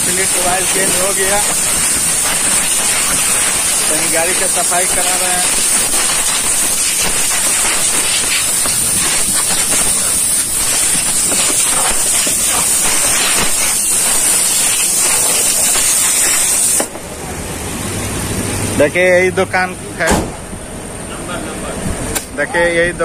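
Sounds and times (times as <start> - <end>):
air blow gun hissing: 0.0 - 17.2.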